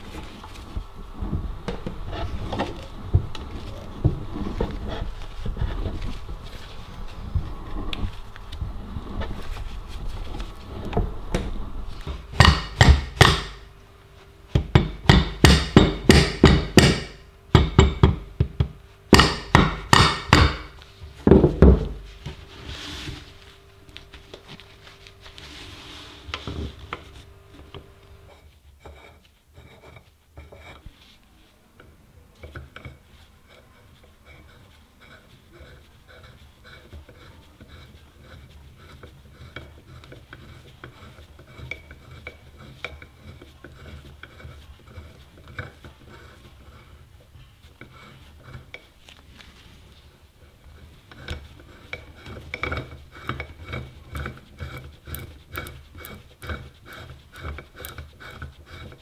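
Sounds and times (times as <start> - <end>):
hammer tapping on metal: 12.4 - 13.7, 14.6 - 20.8.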